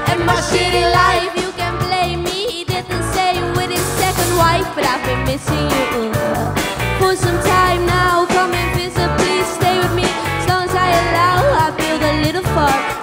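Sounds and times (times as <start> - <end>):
steady drum beat: 0.0 - 5.1
electric guitars: 0.0 - 13.0
woman singing into a microphone: 0.0 - 13.0.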